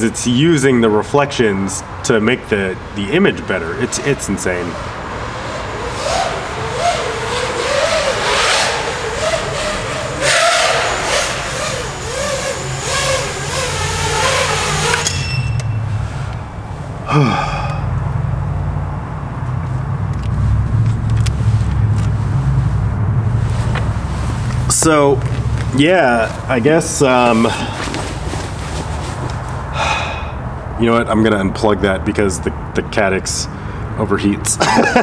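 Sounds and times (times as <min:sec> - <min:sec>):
quadcopter motor whine: 0:04.5 - 0:16.6
low steady rumble: 0:10.8 - 0:31.5.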